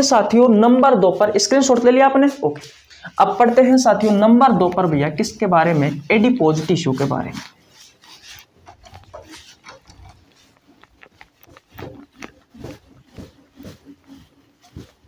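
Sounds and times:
cloth wiping whiteboard: 0.0s - 15.0s.

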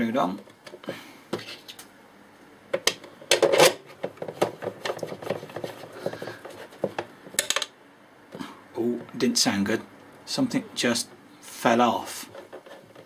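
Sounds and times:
small handling clicks and scrapes: 12.3s - 13.0s.

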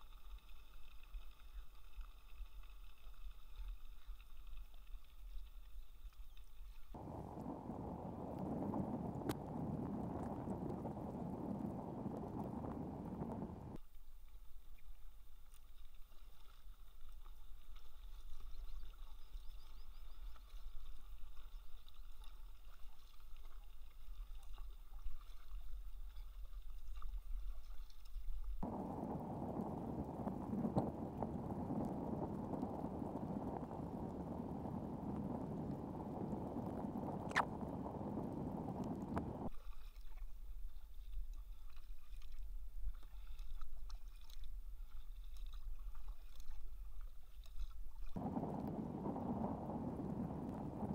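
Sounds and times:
kayak paddling on water: 0.0s - 50.9s
low rushing of water: 6.9s - 13.8s, 28.6s - 47.0s, 48.0s - 50.9s.

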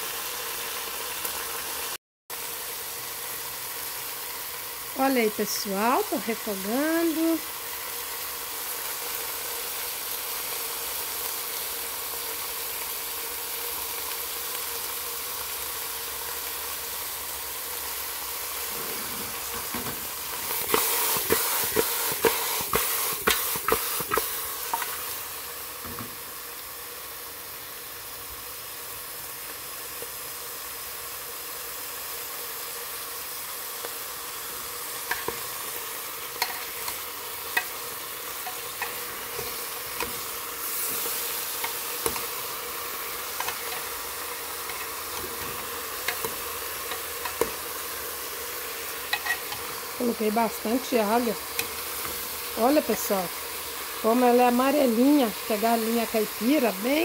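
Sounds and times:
chicken sizzling in a pot: 0.0s - 57.0s
metal spoon clanking against pot: 49.1s - 49.6s.

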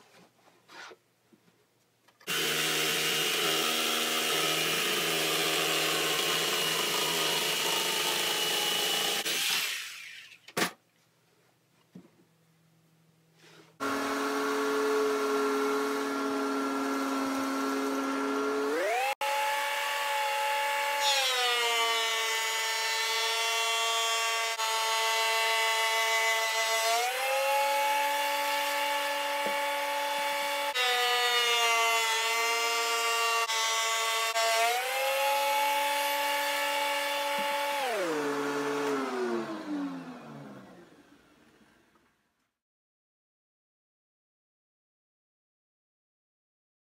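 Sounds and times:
thickness planer whining: 2.2s - 10.4s, 13.8s - 41.8s
planer winding down: 13.8s - 19.8s, 34.5s - 41.3s.

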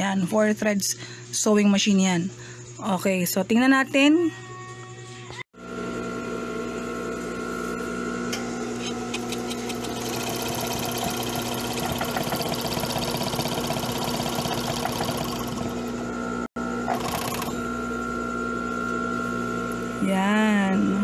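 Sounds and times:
motor hum: 5.6s - 21.0s
overlock machine stitching: 9.4s - 15.9s, 16.8s - 17.7s.

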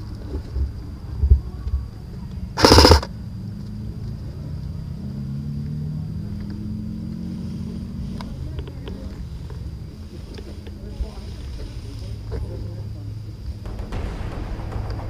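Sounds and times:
airsoft rifle burst: 2.6s - 3.1s.

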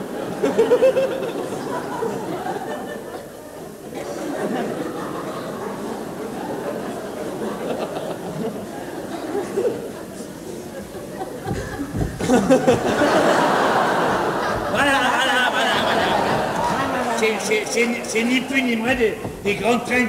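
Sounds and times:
audience laughing and chattering: 0.0s - 20.0s
loud choppy laughing: 10.8s - 18.4s.

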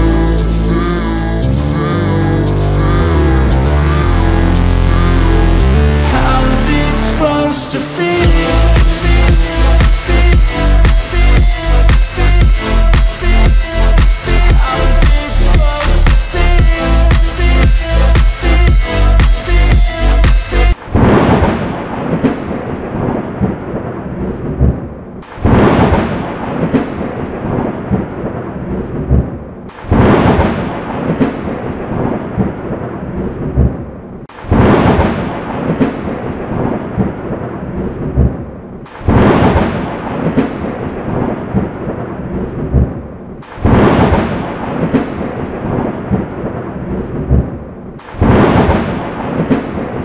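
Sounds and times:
storm rumble: 20.1s - 50.0s
thunderclaps: 20.7s - 50.0s.

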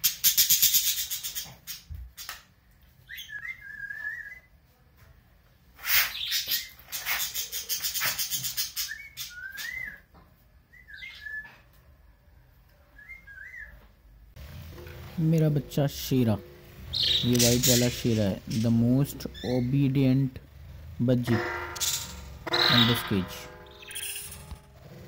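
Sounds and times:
budgerigars chattering warble: 16.1s - 20.2s.

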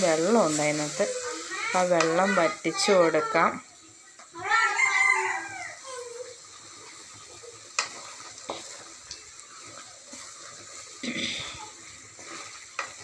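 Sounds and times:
vegetables sizzling in a pan: 0.0s - 13.0s.

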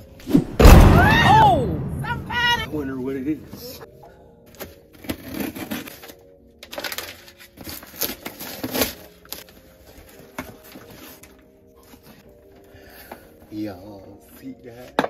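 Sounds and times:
blade slitting packing tape: 4.9s - 9.5s.

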